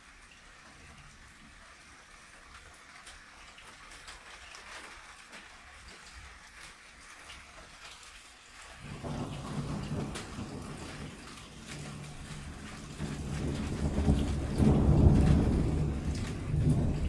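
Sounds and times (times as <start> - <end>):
steady rain falling: 0.0 - 17.0
low rumble of thunder: 8.8 - 17.0.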